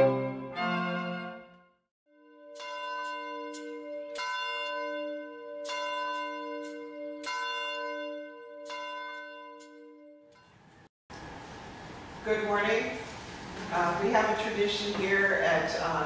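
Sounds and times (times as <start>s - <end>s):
church bell ringing: 2.2s - 10.6s.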